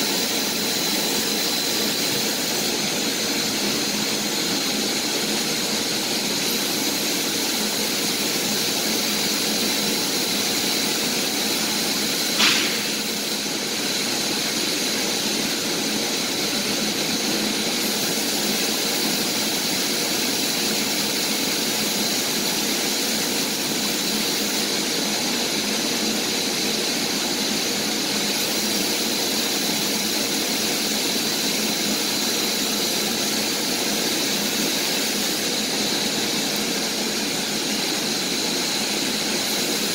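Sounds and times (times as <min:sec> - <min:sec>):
industrial machinery noise: 0:00.0 - 0:39.9
short click: 0:12.4 - 0:13.0.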